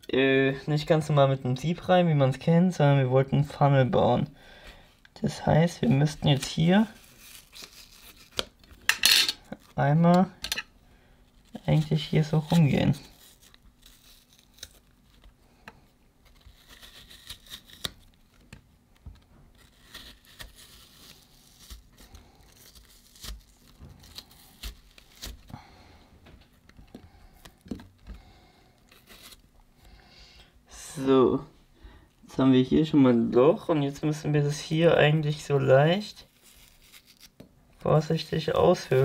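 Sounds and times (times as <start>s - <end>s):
knife scraping apple flesh: 11.4s - 15.2s, 16.3s - 18.2s, 19.5s - 25.5s, 36.2s - 37.4s.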